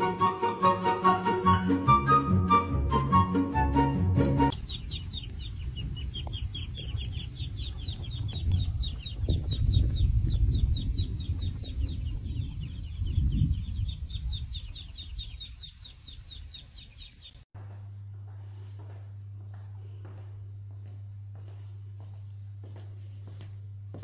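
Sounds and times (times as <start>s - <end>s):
low rumble: 4.5s - 16.8s
chick peeping: 4.5s - 17.4s.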